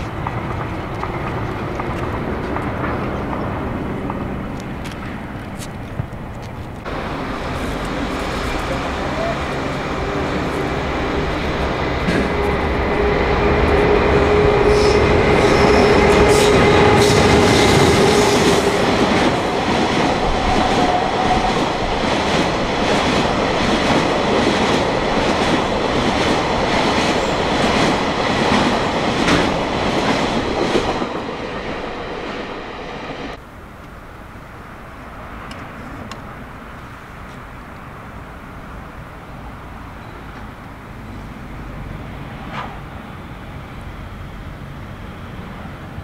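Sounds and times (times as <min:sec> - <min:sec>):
wheels clicking over rail joints: 0:00.0 - 0:09.7
freight train passing: 0:00.0 - 0:46.0.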